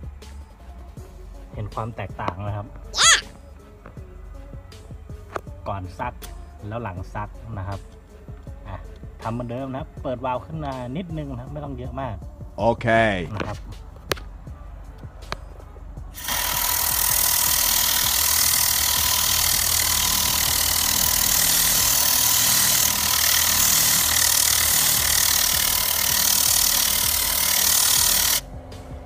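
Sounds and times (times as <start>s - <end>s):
compressed air gun hissing: 16.2s - 28.4s.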